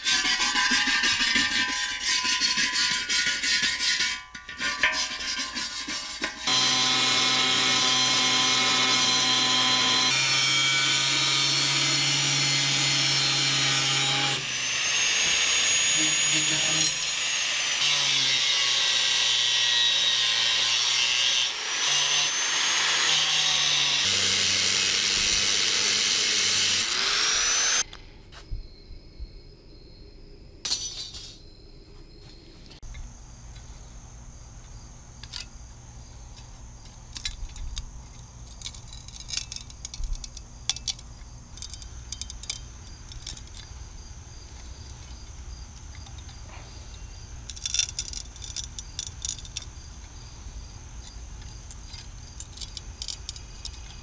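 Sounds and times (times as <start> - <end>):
angle grinder cutting metal: 5.2 - 27.8
pliers clicking and knocking metal: 37.1 - 43.7, 47.5 - 50.1, 51.0 - 54.0.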